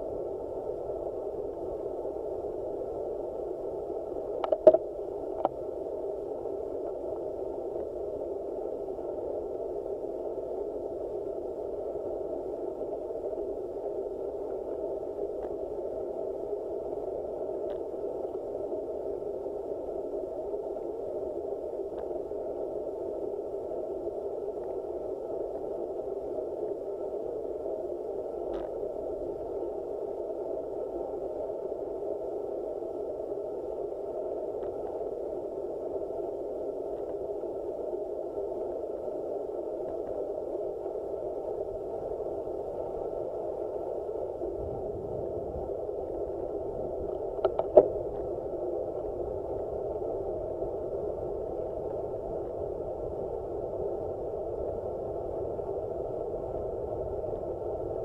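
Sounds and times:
faint clicks: 4.4s - 5.6s, 47.0s - 48.3s
muffled wind and road noise: 44.4s - 48.3s.

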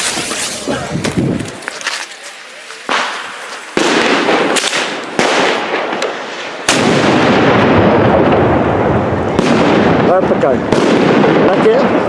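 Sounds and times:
loud firework bangs echoing: 2.8s - 12.0s.

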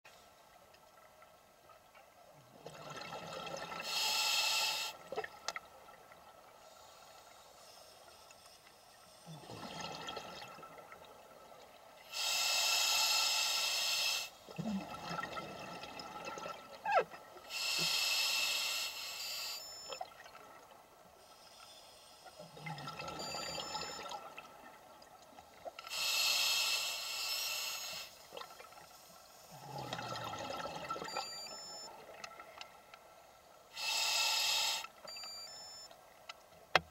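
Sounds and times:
regulator inhale hiss: 3.8s - 5.0s, 6.6s - 9.4s, 12.1s - 14.4s, 17.5s - 19.8s, 21.2s - 22.5s, 25.9s - 28.3s, 33.7s - 35.0s
exhaled air bubbling: 9.3s - 10.9s, 14.5s - 17.0s, 22.4s - 24.6s, 29.5s - 32.2s.

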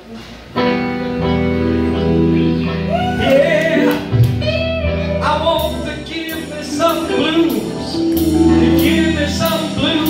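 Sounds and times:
live band playing: 0.1s - 10.0s
person singing: 2.6s - 10.0s.

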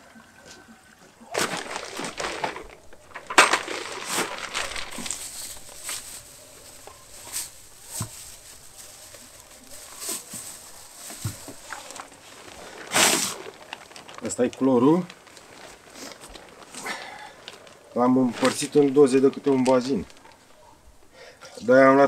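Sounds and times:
plastic bottles knocking and crinkling: 1.2s - 20.5s
footsteps: 1.4s - 13.4s
bucket being put down: 2.3s - 4.3s, 11.1s - 11.8s.

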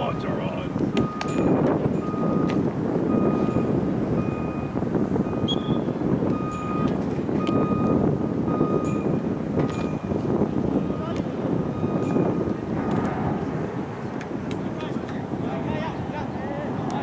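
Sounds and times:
reversing alarm beeping: 0.0s - 10.2s, 11.7s - 13.1s
steady rushing noise: 0.0s - 17.0s.

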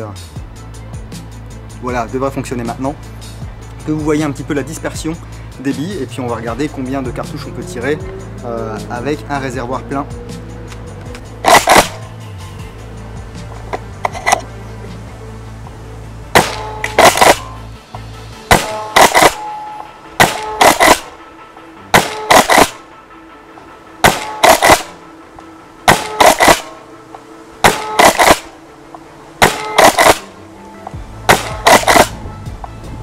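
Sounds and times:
shotgun pump racking: 10.7s - 12.0s, 13.7s - 14.5s, 16.4s - 17.4s, 18.5s - 19.4s, 20.2s - 21.0s, 22.0s - 22.8s, 24.0s - 24.9s, 25.9s - 26.7s, 27.6s - 28.5s, 29.4s - 30.3s, 31.3s - 32.2s
airsoft shotgun shots: 11.4s - 12.0s, 16.4s - 17.5s, 18.5s - 19.5s, 20.2s - 21.1s, 21.9s - 22.8s, 24.0s - 25.0s, 25.9s - 26.8s, 27.6s - 28.5s, 29.4s - 30.3s, 31.3s - 32.2s.

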